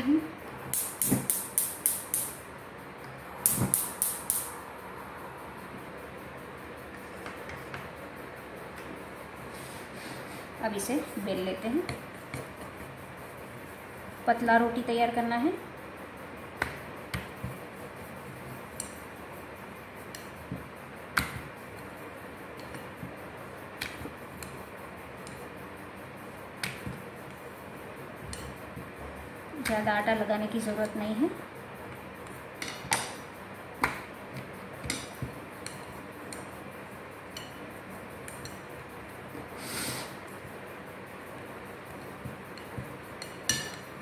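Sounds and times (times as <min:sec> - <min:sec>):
rolling pin rolling dough: 0:16.4 - 0:44.0.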